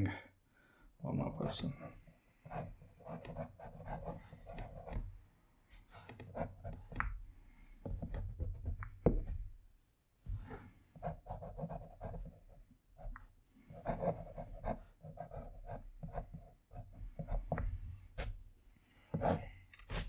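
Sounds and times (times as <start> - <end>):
pencil scratching on paper: 2.4 - 5.1, 5.7 - 7.0, 10.4 - 13.1, 13.7 - 17.6, 19.1 - 20.0
pencil tapping: 6.0 - 7.2, 7.8 - 9.5.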